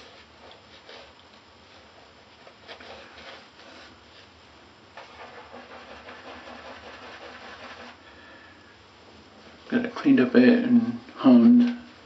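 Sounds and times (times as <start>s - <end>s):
shaving brush scrubbing lather: 5.0s - 8.0s.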